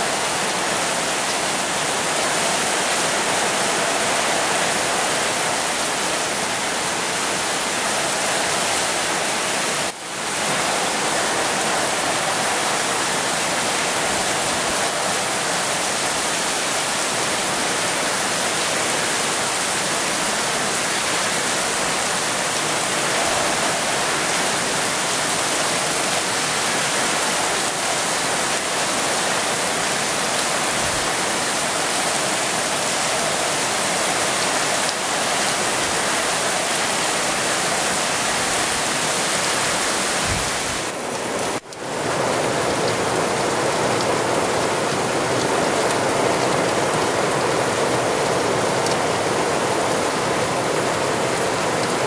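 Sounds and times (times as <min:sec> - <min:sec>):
heavy rain pouring: 0:00.0 - 0:52.0.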